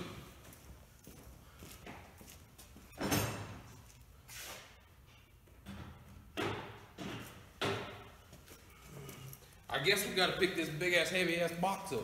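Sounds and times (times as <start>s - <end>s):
tools knocking and clunking: 5.6s - 8.2s.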